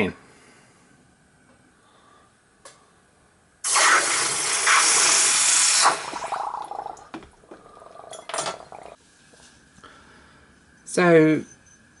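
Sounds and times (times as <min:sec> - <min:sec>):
hot metal sizzling hiss: 0:03.7 - 0:06.3
bubbling and crackles: 0:03.7 - 0:09.0.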